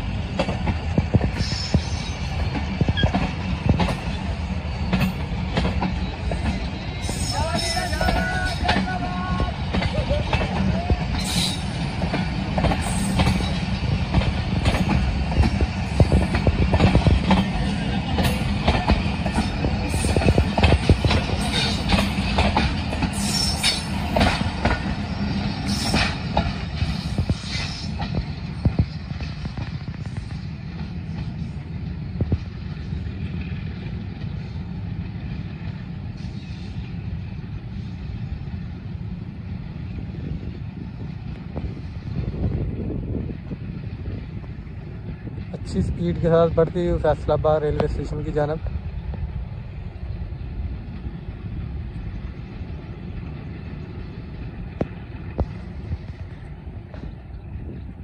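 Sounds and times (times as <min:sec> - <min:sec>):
train wheels clattering over rail joints: 0:00.0 - 0:39.0.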